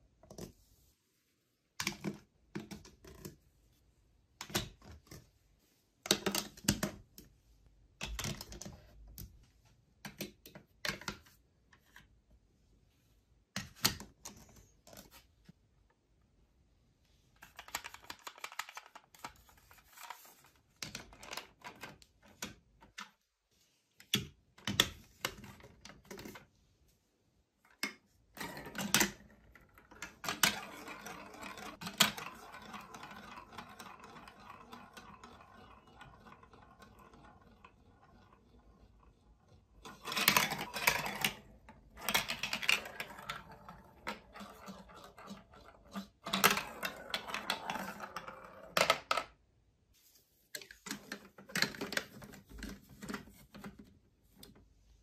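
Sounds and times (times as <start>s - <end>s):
plastic toy blocks clacking: 6.1s - 7.2s, 8.0s - 9.3s, 17.4s - 23.1s, 27.7s - 49.4s, 50.6s - 53.9s.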